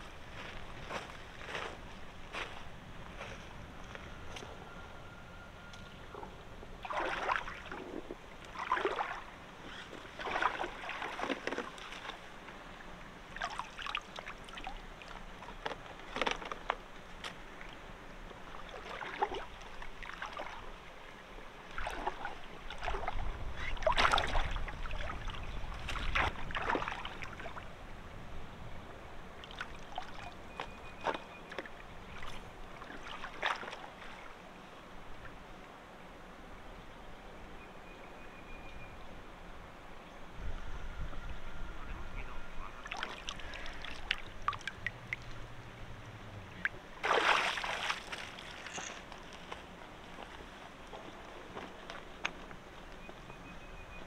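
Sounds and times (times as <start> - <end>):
shallow water sloshing and splashing: 6.1 - 27.8, 29.3 - 34.5, 42.8 - 45.5, 46.5 - 53.2.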